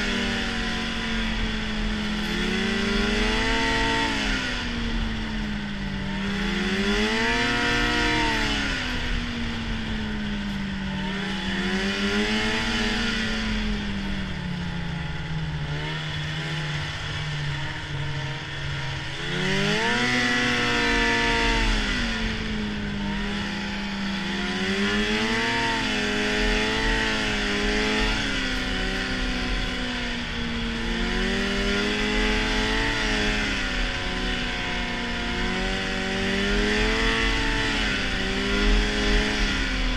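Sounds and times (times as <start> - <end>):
snowmobile engine revving: 0.0 - 39.9.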